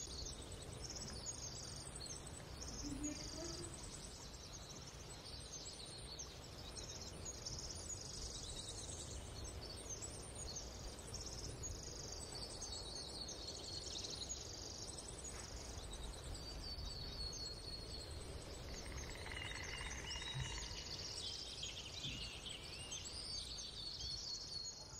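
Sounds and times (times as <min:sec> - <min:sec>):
small birds chirping: 0:00.0 - 0:24.9
whistled bird notes: 0:18.7 - 0:24.9.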